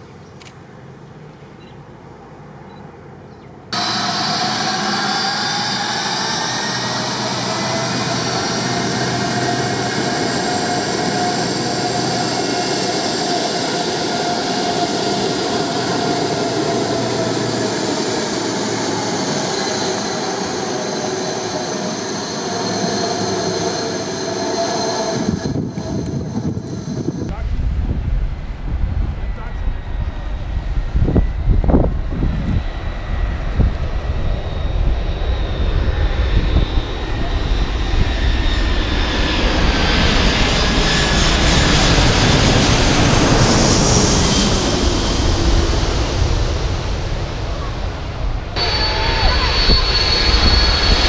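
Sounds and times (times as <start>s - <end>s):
jet engines at high power: 0.0s - 51.0s.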